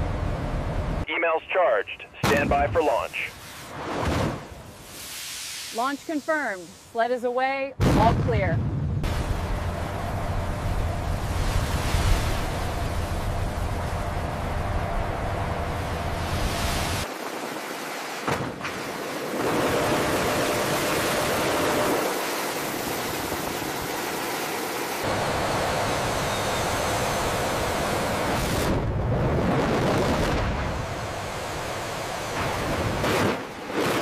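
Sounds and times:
steady rushing noise: 8.4 - 17.9, 19.1 - 34.0.

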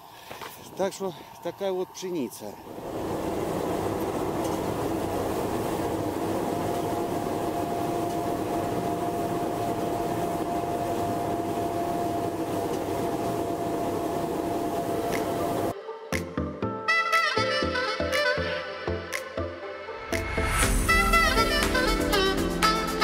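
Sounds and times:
combine harvester drone: 0.0 - 15.7
steady whine: 0.0 - 15.7.

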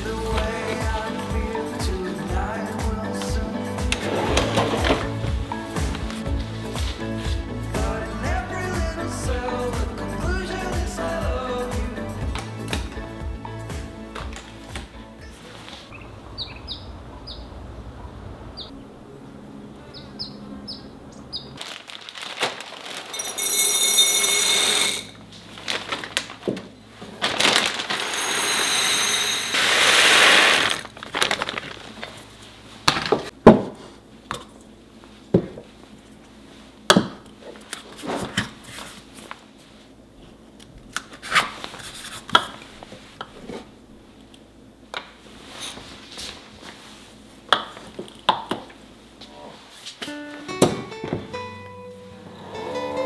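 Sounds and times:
faint bird chirps: 15.9 - 17.5
glass jars and lids clinking: 23.2 - 25.2, 27.9 - 30.6
grain poured into glass jars: 27.7 - 31.5.

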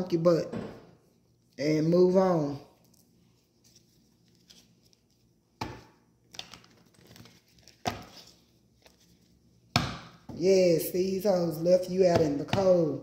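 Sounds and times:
soft card rustling: 2.7 - 5.5, 6.1 - 9.6
cards being shuffled: 3.6 - 9.4.

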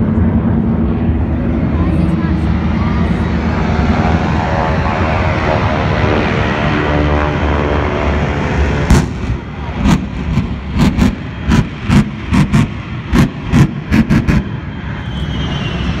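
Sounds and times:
aircraft engines droning: 0.0 - 16.0
pyrotechnic bangs: 8.8 - 14.4.

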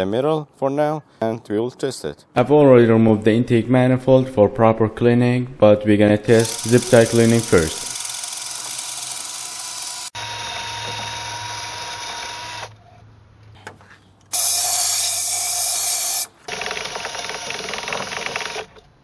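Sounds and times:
drill spinning brush in metal port: 6.3 - 12.7, 14.3 - 18.8.

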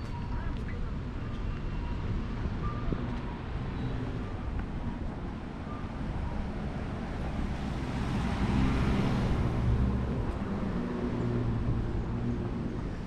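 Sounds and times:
vehicle passing by: 7.3 - 13.0.

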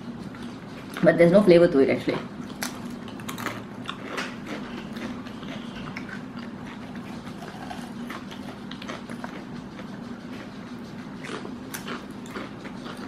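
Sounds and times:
steady low hum: 0.0 - 13.0
chips crunching and chewing: 2.1 - 10.5, 11.2 - 13.0.

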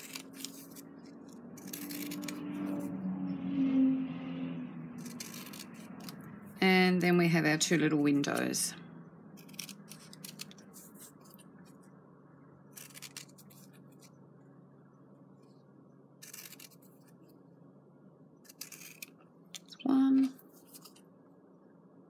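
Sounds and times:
scissors snipping fabric: 1.6 - 2.4, 5.0 - 6.2, 9.4 - 10.6, 12.7 - 13.4.

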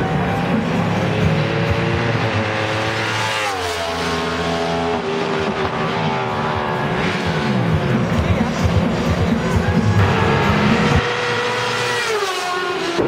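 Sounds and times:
motorcycle engine passing at high revs: 1.2 - 6.5, 10.0 - 13.0.

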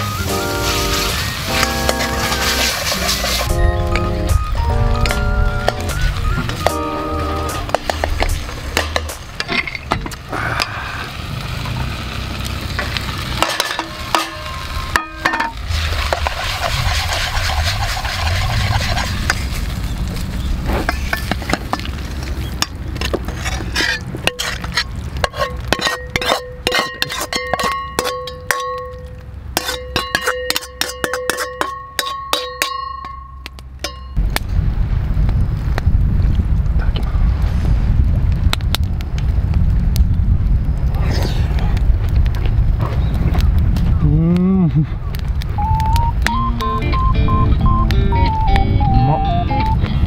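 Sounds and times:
food sizzling in a wok: 0.0 - 3.6, 10.6 - 19.9
metal ladle scraping wok: 0.1 - 3.6, 7.4 - 10.2, 12.7 - 20.0, 20.7 - 21.9, 22.5 - 34.0
ladle clanking against metal: 25.2 - 34.2.

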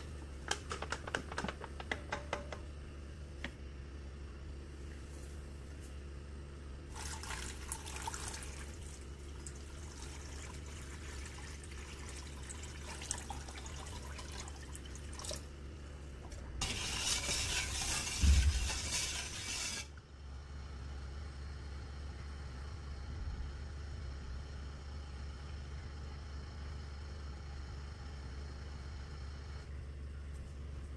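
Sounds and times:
water pouring into saucepan: 6.9 - 15.4, 16.6 - 19.8
thump: 18.2 - 18.8.

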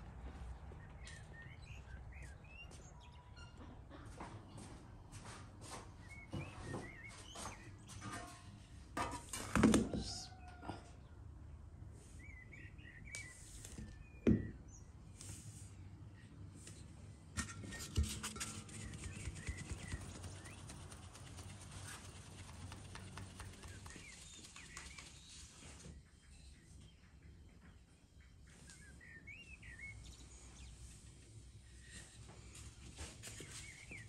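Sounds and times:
faint birds chirping: 0.0 - 9.0, 9.9 - 34.0
sieve rattling with flour: 17.4 - 25.1.

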